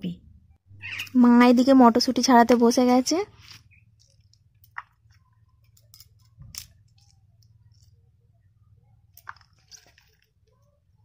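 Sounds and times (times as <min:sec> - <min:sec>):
low hum: 0:00.0 - 0:11.0
pea pods snapping open: 0:05.8 - 0:07.5.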